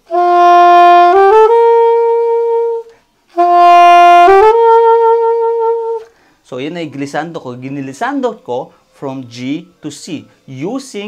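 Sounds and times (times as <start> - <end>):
soprano saxophone glissando: 0.0 - 6.2.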